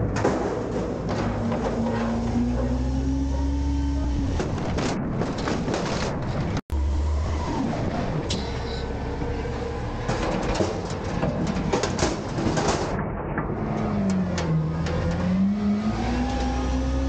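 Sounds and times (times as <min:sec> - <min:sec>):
metal clanks and knocks: 0:00.0 - 0:06.6, 0:09.2 - 0:15.3
diesel engine and hydraulics: 0:00.6 - 0:12.7.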